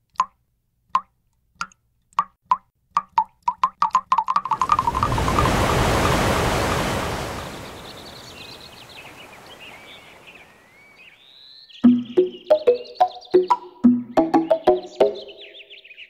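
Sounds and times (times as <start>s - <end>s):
rushing swell of noise: 4.5s - 10.6s
faint high chirping glides: 4.5s - 13.5s.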